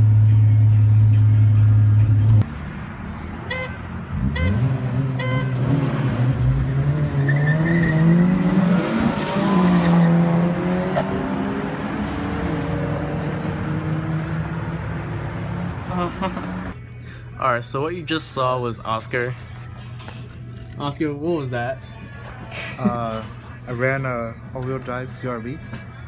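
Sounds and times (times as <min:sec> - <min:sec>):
car horn toots: 0:03.4 - 0:05.7
car engine accelerating hard: 0:04.1 - 0:16.8.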